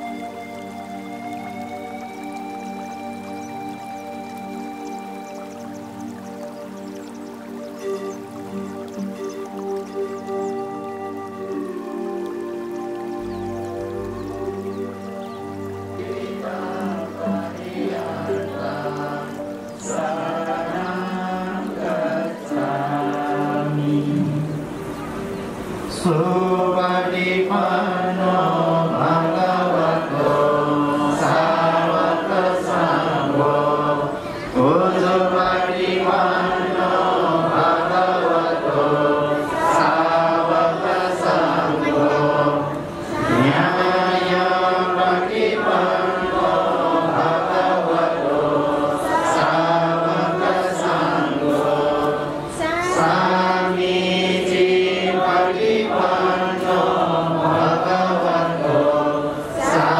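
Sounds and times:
group of voices chanting: 26.0 - 59.9.

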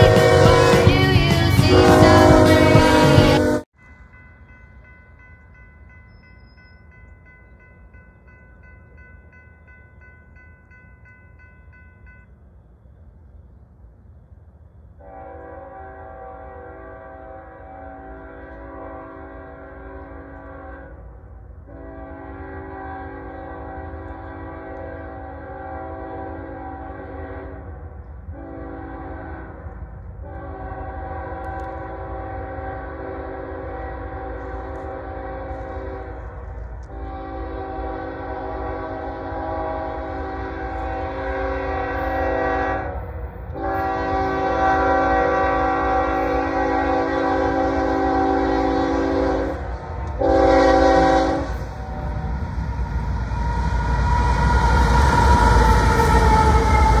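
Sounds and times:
locomotive air horn: 0.0 - 3.7, 15.0 - 21.1, 21.7 - 52.2
distant crossing bell ringing: 3.8 - 12.4.

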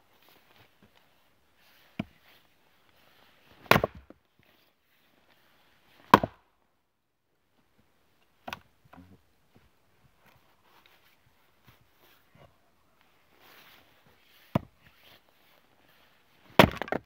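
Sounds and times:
axe chopping wood: 3.6 - 4.1, 6.1 - 6.4, 16.5 - 17.0.

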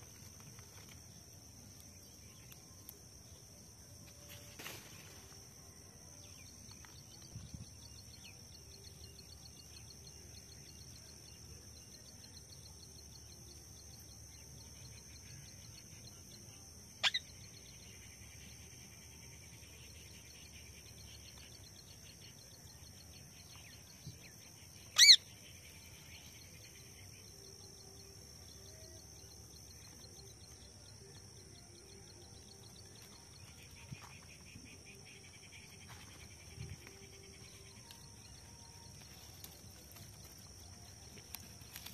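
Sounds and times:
steady high-pitched whine: 0.0 - 41.9
parakeet squawks: 25.0 - 25.2.

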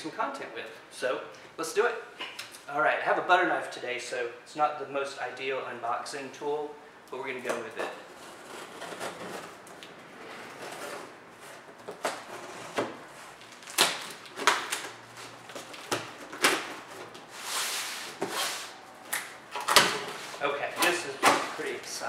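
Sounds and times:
cardboard scraping: 7.8 - 18.8, 19.7 - 22.0.

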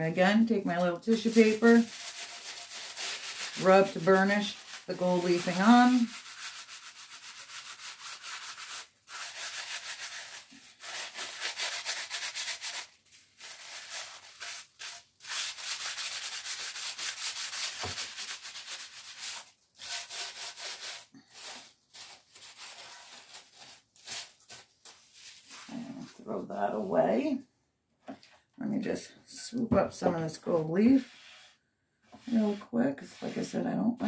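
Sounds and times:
tissue paper rubbing: 0.7 - 26.2, 30.9 - 31.6.

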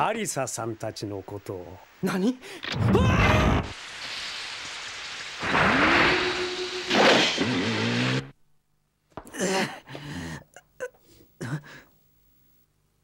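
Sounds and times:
heavy rain: 2.5 - 7.7
motorcycle engine revving: 7.4 - 8.3
man groaning and gasping: 9.3 - 10.6.

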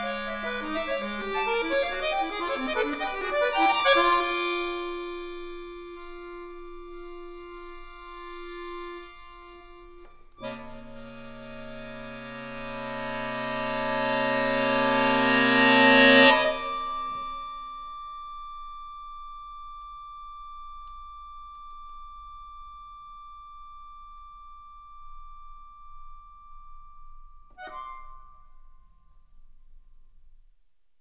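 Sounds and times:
accordion chord and held note: 0.0 - 17.6.

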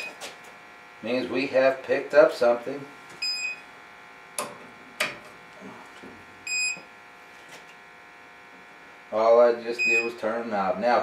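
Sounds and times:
gas detector high beeps: 3.2 - 3.6, 6.5 - 6.8, 9.8 - 10.2.

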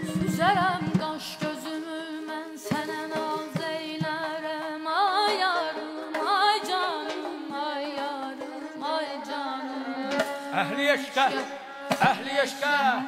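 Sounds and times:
ornamented melody: 0.0 - 2.3
drum strokes: 0.0 - 12.5.

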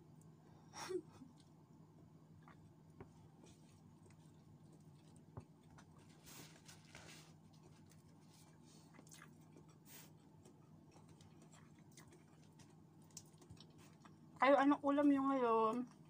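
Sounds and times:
low steady hum: 0.0 - 16.0
close-up chewing of food: 2.3 - 14.4, 15.6 - 16.0
soft rustles: 6.0 - 8.9.

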